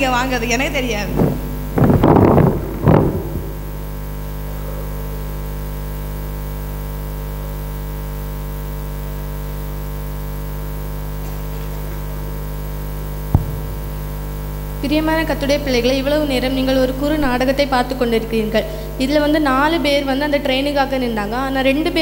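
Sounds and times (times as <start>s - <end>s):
electrical hum and buzz: 0.0s - 22.0s.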